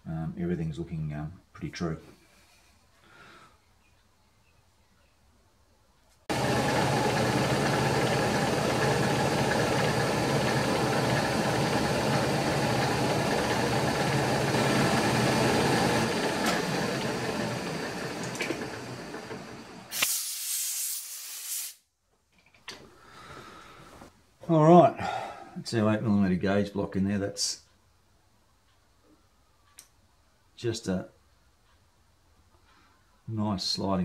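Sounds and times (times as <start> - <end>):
milling machine whine with cutting: 6.3 - 19.9
compressed air blast: 19.9 - 21.8.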